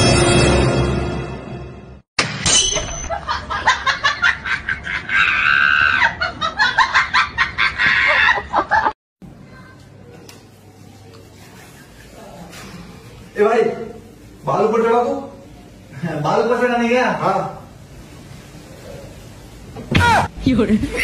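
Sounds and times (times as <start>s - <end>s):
music: 0.0s - 2.0s.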